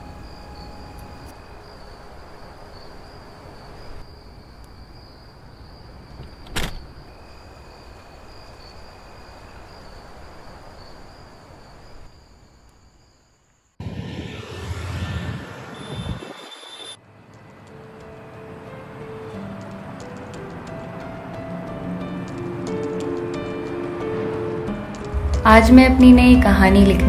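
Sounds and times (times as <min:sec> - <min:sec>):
car road and engine noise: 0:13.8 - 0:25.4.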